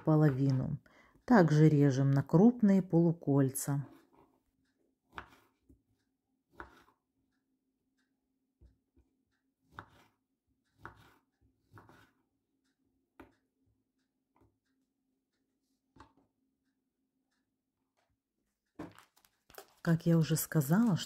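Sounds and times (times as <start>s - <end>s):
knife slicing an orange: 5.0s - 7.2s, 9.6s - 12.4s.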